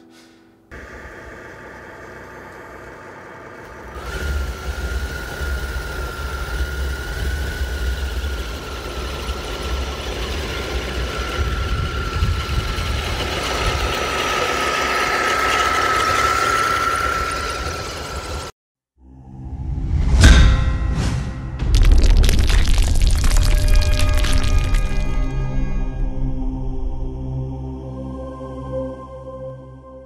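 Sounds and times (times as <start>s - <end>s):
electric motor whine: 0.7s - 18.5s
low rumble: 4.0s - 18.5s, 19.2s - 27.8s.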